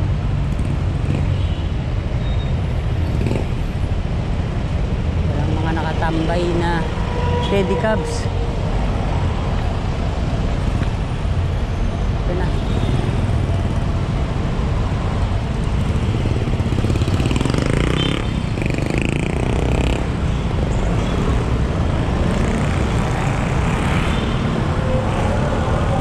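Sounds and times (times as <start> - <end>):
cars and motorcycles passing: 0.0 - 26.0
vehicle passing loudly: 15.5 - 26.0.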